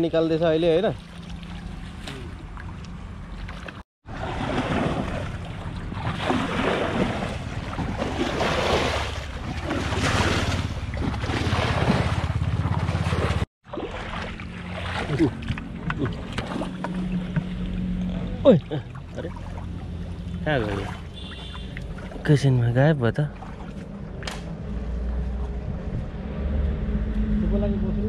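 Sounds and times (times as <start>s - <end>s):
stream water splashing: 0.4s - 25.3s
wind rumbling on microphone: 23.8s - 28.0s.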